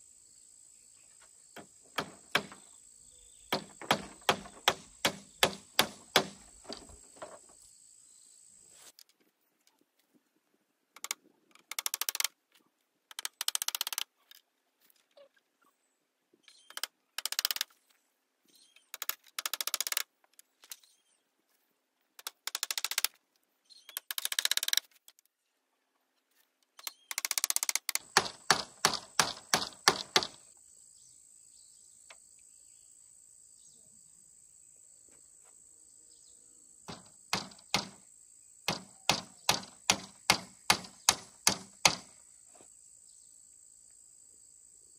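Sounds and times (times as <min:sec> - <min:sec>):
sharp hammering knocks: 0:01.6 - 0:02.7, 0:03.5 - 0:07.3, 0:27.9 - 0:30.5, 0:36.9 - 0:42.2.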